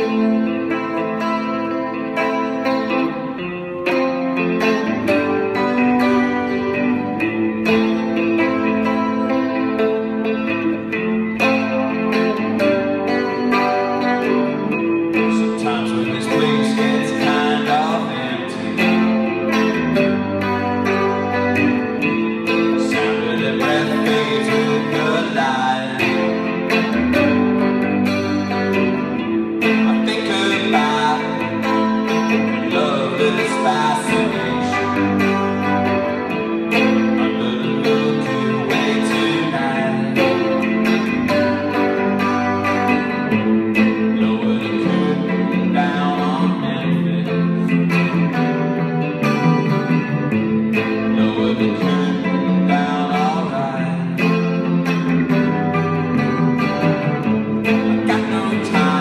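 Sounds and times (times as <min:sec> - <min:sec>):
electric guitar playing: 0:00.0 - 0:59.0
man singing: 0:11.7 - 0:27.8, 0:28.5 - 0:41.8, 0:42.6 - 0:48.5, 0:50.7 - 0:56.8, 0:57.6 - 0:59.0.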